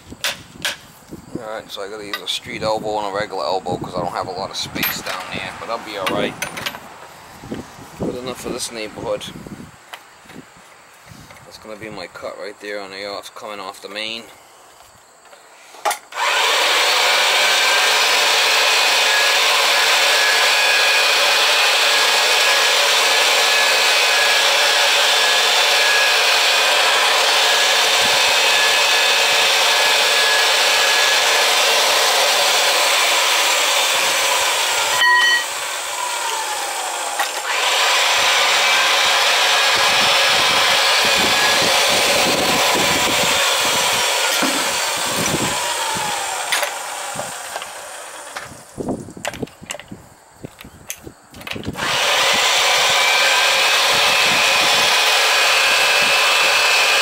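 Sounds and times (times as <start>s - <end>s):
pipe cutter cutting pipe: 15.9s - 48.6s, 51.6s - 57.0s
pipe threading machine running: 16.1s - 48.3s, 51.8s - 57.0s.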